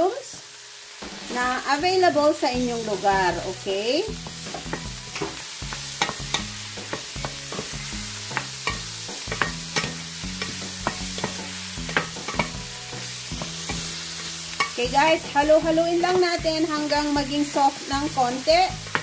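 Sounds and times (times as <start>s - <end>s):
mushrooms sizzling in a frying pan: 0.0s - 19.0s
utensil clicking and scraping pan: 4.4s - 7.7s, 8.3s - 12.6s.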